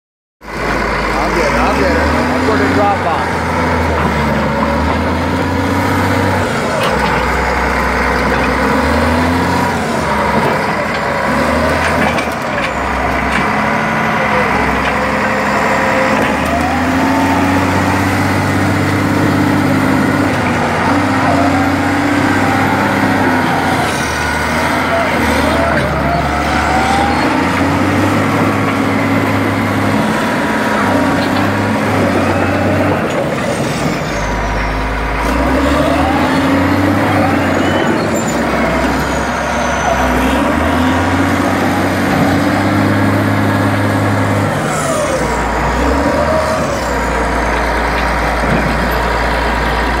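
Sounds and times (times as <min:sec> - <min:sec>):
bulldozer diesel engine running: 0:00.4 - 0:50.0
steel tracks squealing: 0:19.3 - 0:29.2, 0:29.8 - 0:43.3.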